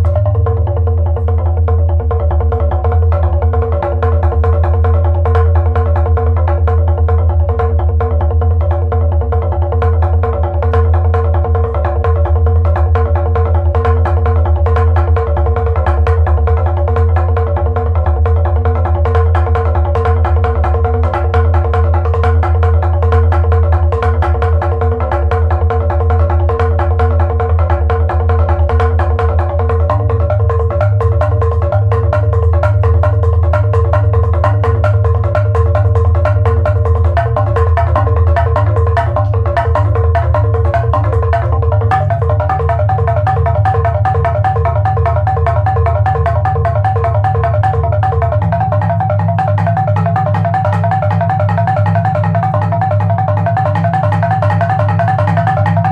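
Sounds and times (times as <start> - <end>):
repeated mallet-struck notes: 18.9 - 55.9.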